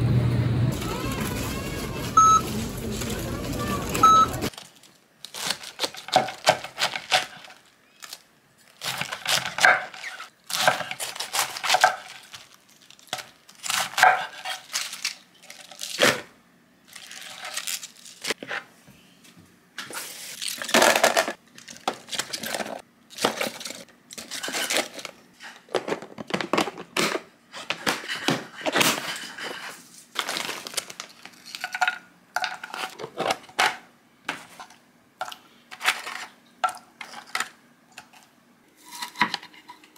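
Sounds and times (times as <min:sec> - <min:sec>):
plastic packaging crinkling: 0:00.8 - 0:13.8, 0:14.4 - 0:16.2, 0:16.8 - 0:18.4, 0:29.9 - 0:31.8.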